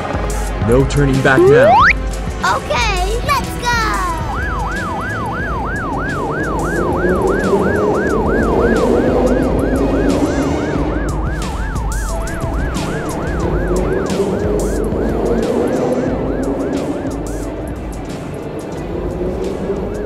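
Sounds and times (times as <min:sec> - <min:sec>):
cartoon siren wailing: 0:01.4 - 0:02.0, 0:03.8 - 0:04.6.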